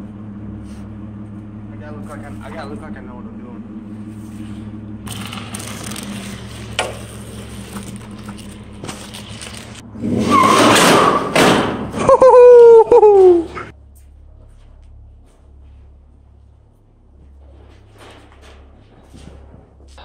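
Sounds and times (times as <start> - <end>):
vehicle engine humming: 0.0 - 20.0
loud rough scraping: 3.9 - 12.0
loud falling screech: 10.0 - 13.7.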